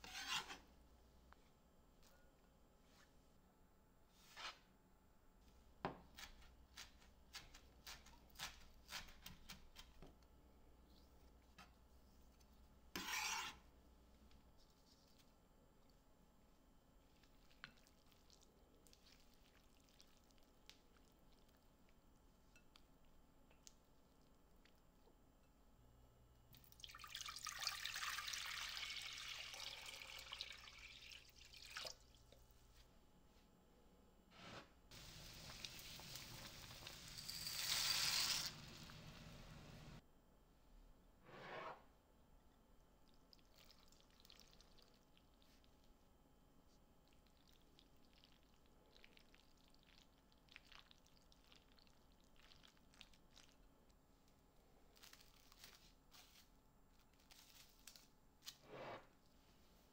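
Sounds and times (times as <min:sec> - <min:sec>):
kitchen utensil scraping: 0:00.0 - 0:00.7, 0:12.9 - 0:13.7, 0:41.2 - 0:41.9
tap water running: 0:26.8 - 0:32.0.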